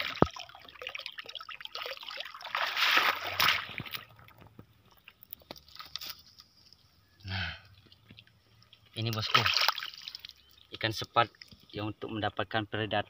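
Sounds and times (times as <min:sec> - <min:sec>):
muddy water splashing: 0:00.0 - 0:06.1, 0:07.8 - 0:11.9
faint ticks and rustles: 0:04.0 - 0:09.2.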